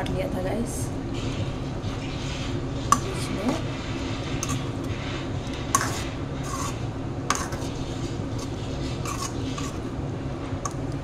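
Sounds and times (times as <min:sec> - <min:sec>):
ladle stirring thick curry: 0:03.7 - 0:10.0.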